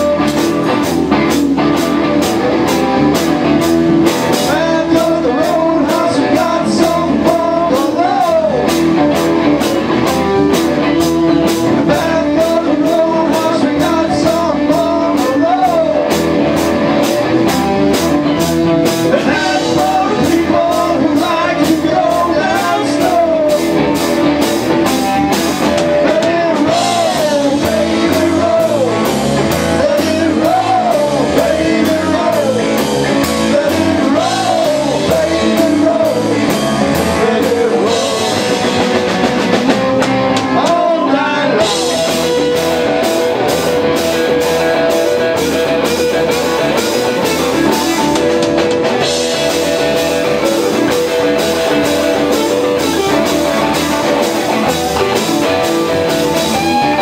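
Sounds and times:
male lead vocal: 0.0s - 0.9s, 4.2s - 9.1s, 11.4s - 16.4s, 18.9s - 24.2s, 24.9s - 48.4s
blues-rock band playing: 0.0s - 57.0s
electric guitars: 0.0s - 57.0s.

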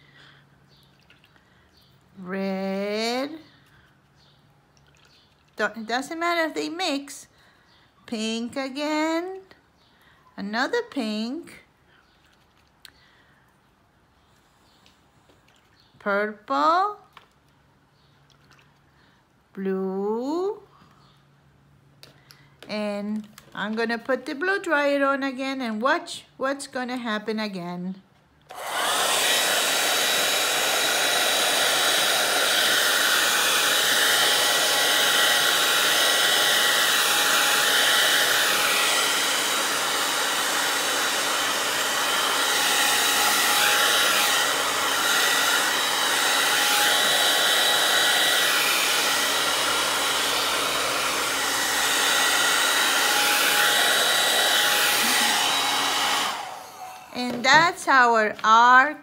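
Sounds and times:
hair dryer running: 28.5s - 58.8s.

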